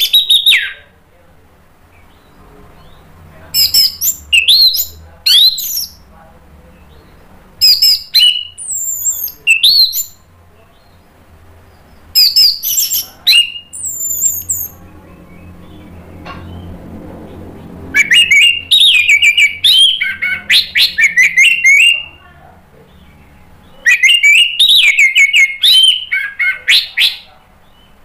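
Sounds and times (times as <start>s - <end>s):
thrush singing whistled notes: 0.0s - 0.8s, 2.0s - 6.0s, 7.6s - 10.2s, 11.7s - 15.9s, 17.9s - 22.2s, 23.7s - 28.0s.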